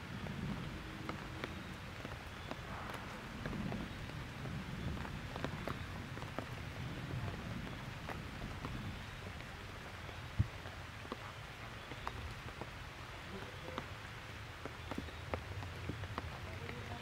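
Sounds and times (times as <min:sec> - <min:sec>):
rain falling: 0:00.0 - 0:17.0.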